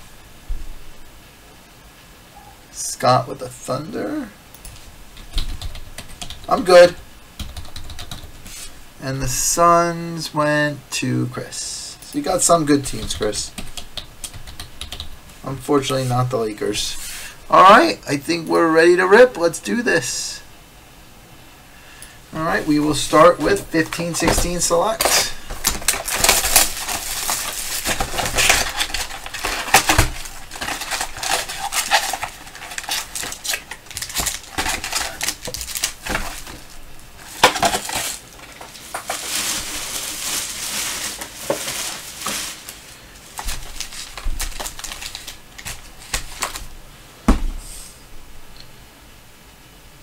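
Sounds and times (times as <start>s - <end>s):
cardboard and wrappers rustling: 22.4s - 46.8s
packs knocking on table: 43.4s - 46.7s.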